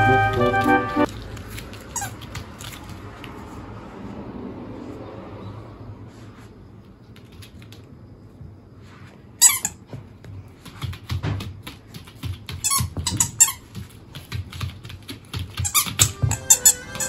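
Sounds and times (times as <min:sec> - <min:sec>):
dog chewing squeaky ball: 0:15.6 - 0:17.0.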